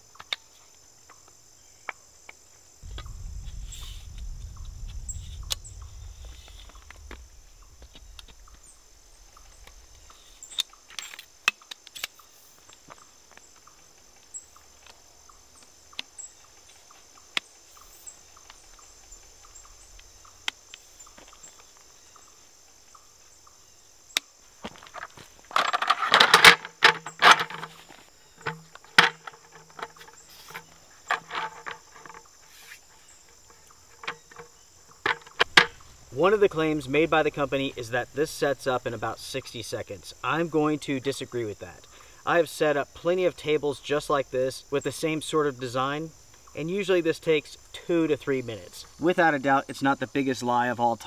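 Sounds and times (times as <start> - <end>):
high insect chorus: 0.0 - 51.0
slat tabletop rattling and scraping: 24.9 - 32.8, 33.9 - 35.8.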